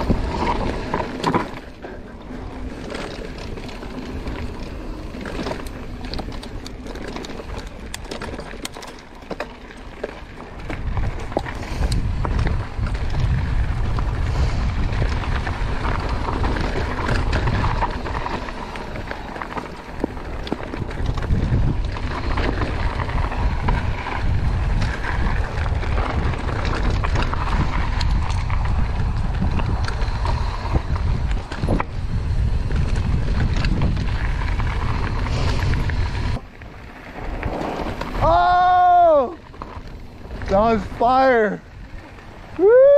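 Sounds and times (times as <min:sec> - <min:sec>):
bike clicks and rattles: 0:00.0 - 0:42.9
tyres on loose dirt: 0:00.0 - 0:42.9
wind rumbling on microphone: 0:00.0 - 0:42.9.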